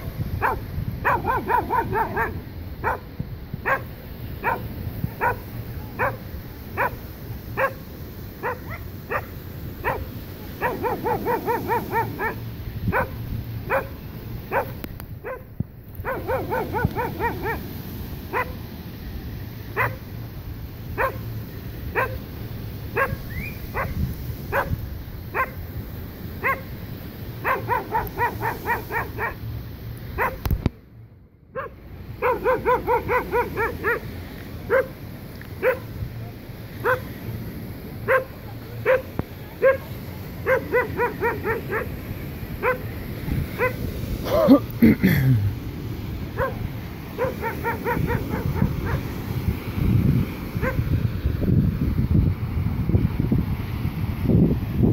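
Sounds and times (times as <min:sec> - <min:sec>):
dog barking: 0:00.4 - 0:07.0, 0:07.6 - 0:07.8, 0:08.4 - 0:17.7, 0:18.3 - 0:18.6, 0:19.8 - 0:20.0, 0:21.0 - 0:21.2, 0:21.9 - 0:22.2, 0:23.0 - 0:25.6, 0:26.4 - 0:26.7, 0:27.4 - 0:29.4, 0:30.2 - 0:30.5, 0:31.5 - 0:34.1, 0:34.7 - 0:35.0, 0:35.6 - 0:35.9, 0:36.8 - 0:37.1, 0:38.0 - 0:42.0, 0:42.6 - 0:42.9, 0:43.6 - 0:44.6, 0:46.4 - 0:46.6, 0:47.2 - 0:49.1, 0:50.6 - 0:50.8.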